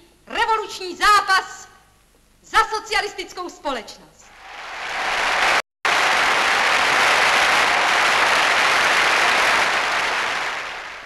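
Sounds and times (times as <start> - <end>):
large crowd applauding: 4.3 - 11.0.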